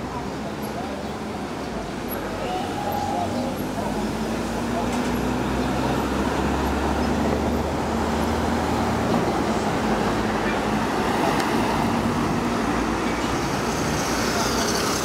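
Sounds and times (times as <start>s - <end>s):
cars driving past: 2.1s - 15.0s.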